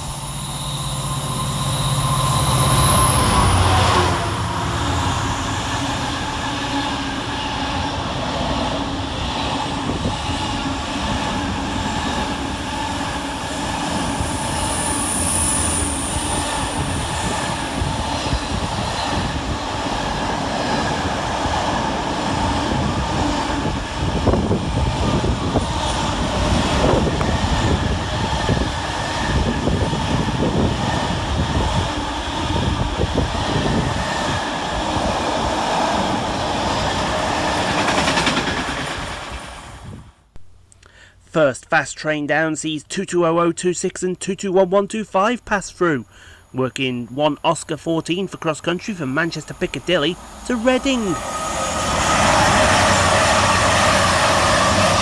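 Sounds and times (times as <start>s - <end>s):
diesel locomotive passing: 0.0s - 40.3s, 47.4s - 55.0s.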